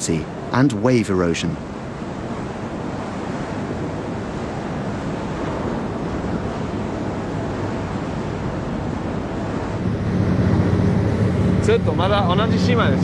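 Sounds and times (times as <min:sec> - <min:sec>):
waves washing in a sea cave: 0:00.0 - 0:13.0.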